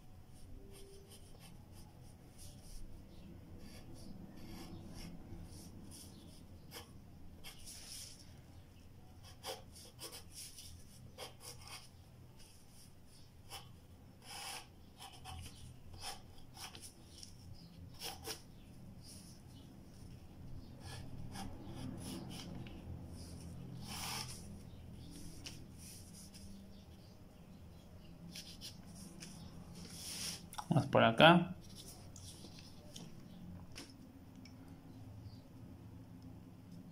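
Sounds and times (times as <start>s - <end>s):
pencil scratching on paper: 3.6s - 8.2s, 9.2s - 20.0s, 20.7s - 26.6s.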